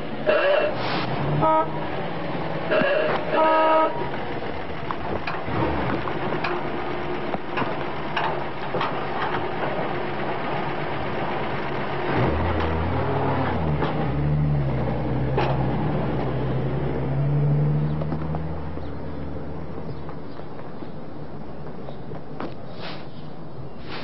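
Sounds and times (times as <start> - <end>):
old car horn tooting: 0.2 - 0.8, 1.4 - 1.9, 2.7 - 4.1.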